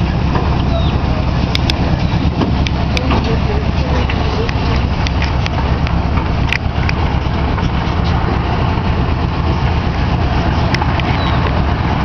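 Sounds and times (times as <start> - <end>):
park train engine running: 0.0 - 12.0.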